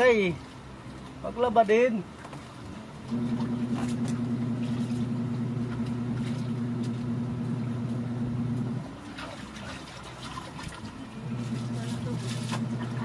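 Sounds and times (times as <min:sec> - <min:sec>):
knocks and splashes of washing: 0:02.1 - 0:13.0
washing machine motor humming: 0:02.7 - 0:13.0.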